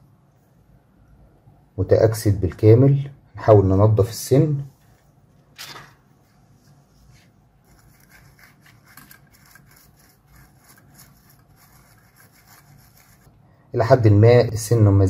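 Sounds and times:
faint rapid scratching in wire wool: 6.6s - 13.3s.

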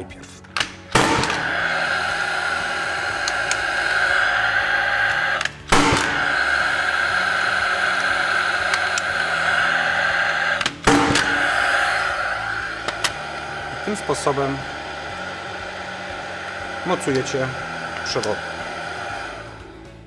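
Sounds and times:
nail gun firing: 0.6s - 1.5s, 5.7s - 6.2s, 10.6s - 11.4s
nail gun whirring: 0.6s - 13.6s.

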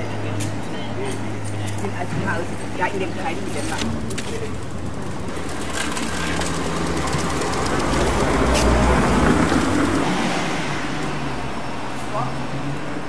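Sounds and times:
motor vehicle passing: 2.9s - 12.8s.

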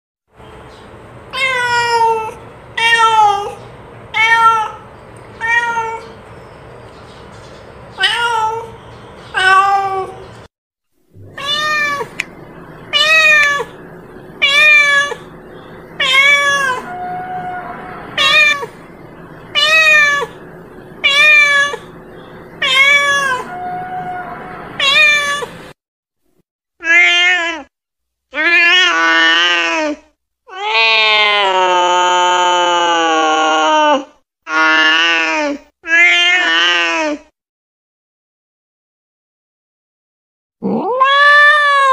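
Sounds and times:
cat meowing: 1.3s - 6.2s, 8.0s - 10.2s, 11.2s - 13.8s, 14.4s - 15.3s, 16.0s - 18.9s, 19.5s - 20.4s, 21.0s - 21.9s, 22.6s - 25.6s, 40.6s - 41.9s.

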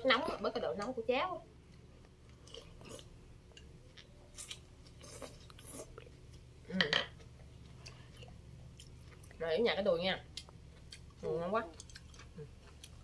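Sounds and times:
person sipping and chewing: 2.2s - 6.2s.

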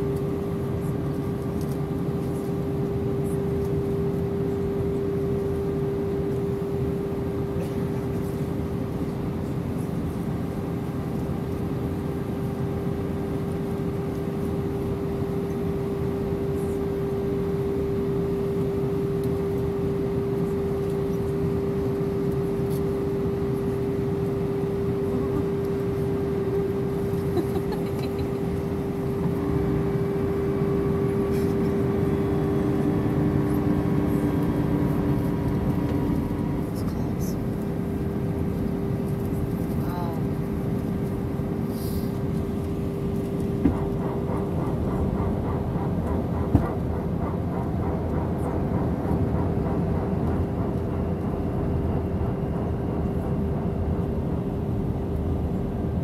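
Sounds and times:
airplane cabin engine rush: 0.0s - 56.0s
constant hum tone: 0.0s - 56.0s.

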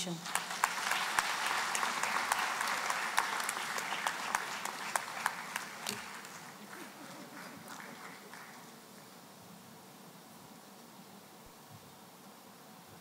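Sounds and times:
audience applause: 0.0s - 9.1s.

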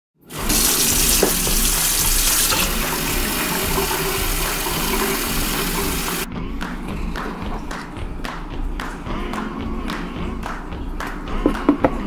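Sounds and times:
faucet running into sink: 0.3s - 6.3s
water filling plastic bottle: 0.3s - 6.3s.

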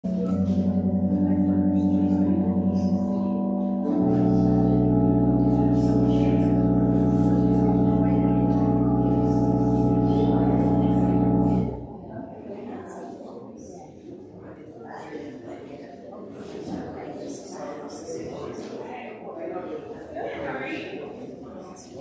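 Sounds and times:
church organ chords: 0.0s - 12.3s.

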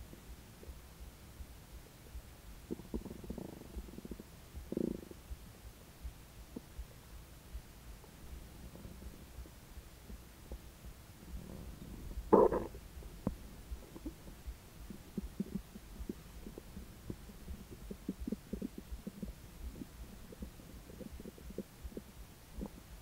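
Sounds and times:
stomach gurgling: 2.7s - 5.2s, 11.2s - 23.0s.

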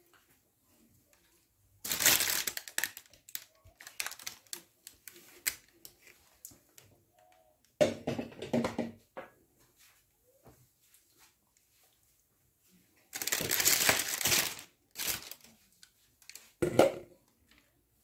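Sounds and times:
kitchen crinkling and clattering: 0.1s - 9.4s, 13.0s - 17.8s.

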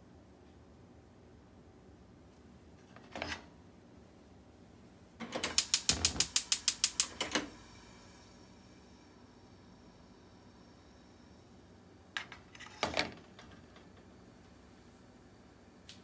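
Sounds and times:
gas stove igniter clicking: 5.2s - 7.5s
gas flame hiss: 5.3s - 11.7s.

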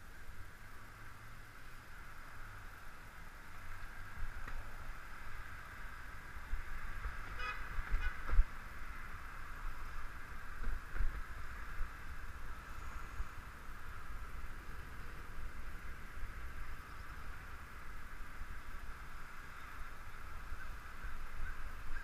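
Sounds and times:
rolling road noise: 0.0s - 22.0s
wind rumble on microphone: 2.2s - 22.0s
short horn toot: 7.3s - 8.3s.

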